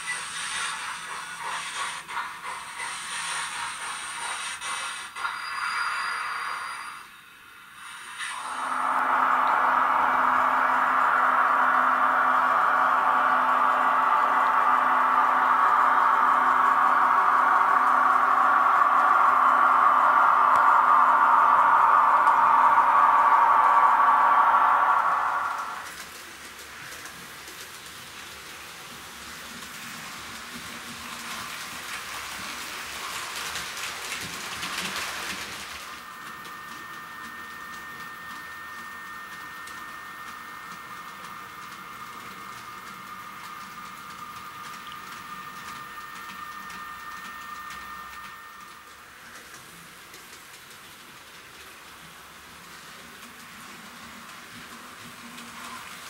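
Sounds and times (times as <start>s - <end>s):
wheels clicking on track: 25.5s - 56.0s.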